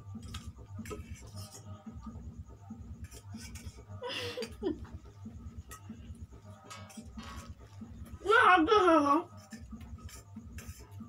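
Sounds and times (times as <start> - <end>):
person laughing: 3.9 - 5.0.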